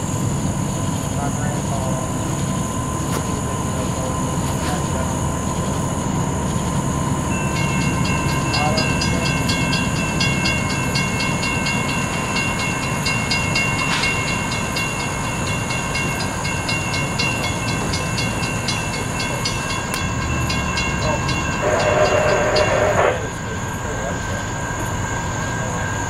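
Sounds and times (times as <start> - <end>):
railroad crossing bell ringing: 0.0 - 26.0
train rumbling: 0.0 - 26.0
locomotive horn: 21.0 - 23.4.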